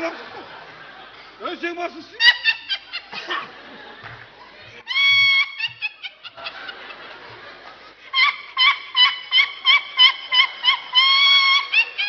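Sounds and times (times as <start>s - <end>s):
woman shrieking: 4.9s - 5.6s.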